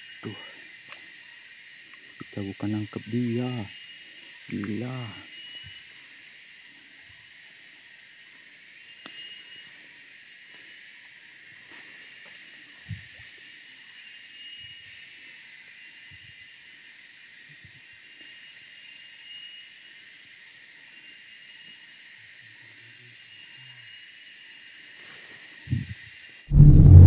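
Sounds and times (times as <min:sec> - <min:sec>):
faint low thump: 0:26.5 - 0:27.0.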